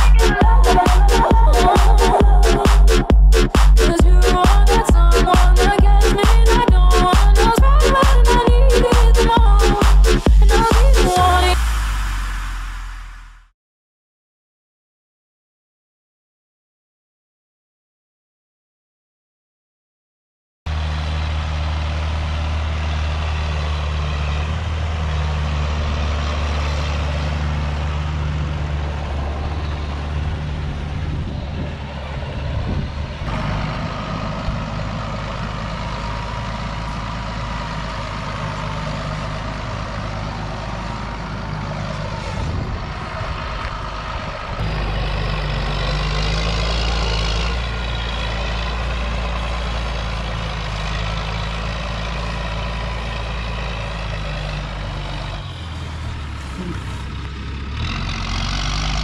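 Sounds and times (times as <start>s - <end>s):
high whine: 0.0s - 6.5s, 7.2s - 13.5s
tractor diesel engine running: 0.0s - 13.5s, 20.7s - 59.0s.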